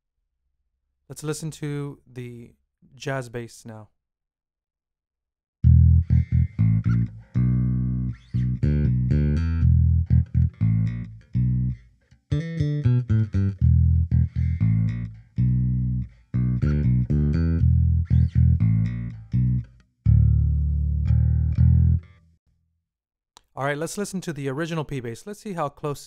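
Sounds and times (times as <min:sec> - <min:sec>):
bass plucked notes: 0:05.6 - 0:22.2.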